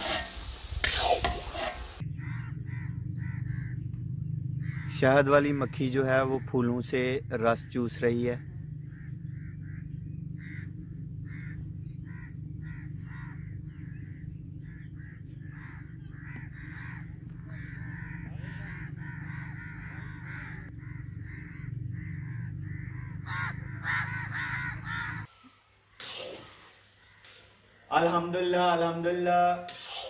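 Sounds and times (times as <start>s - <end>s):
birds calling: 1.8s - 30.0s
steady low hum: 2.0s - 25.3s.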